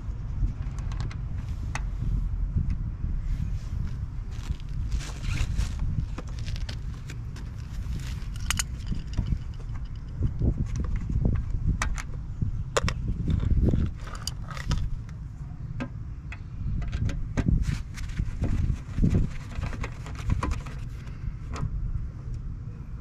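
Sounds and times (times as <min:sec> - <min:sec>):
steady low rumble: 0:00.0 - 0:23.0
plastic lens being handled: 0:04.4 - 0:11.1, 0:12.8 - 0:15.2
screwdriver clicks and metallic taps: 0:08.1 - 0:10.1.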